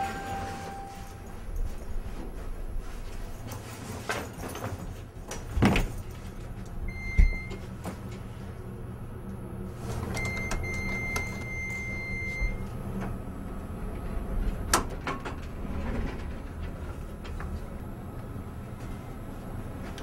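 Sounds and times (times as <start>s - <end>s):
elevator doors sliding: 0.0s - 1.5s, 9.8s - 20.0s
elevator hum: 0.0s - 3.9s, 5.0s - 20.0s.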